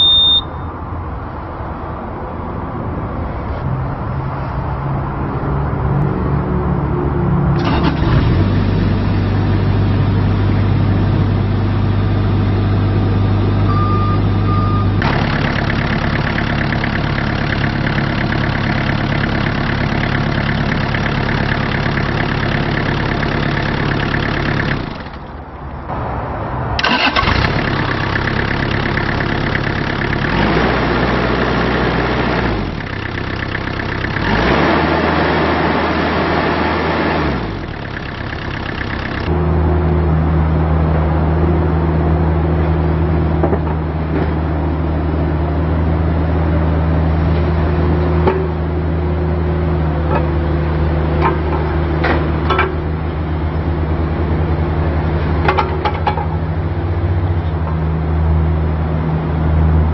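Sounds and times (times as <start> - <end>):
diesel engine running: 6.0 - 26.0, 26.8 - 59.9.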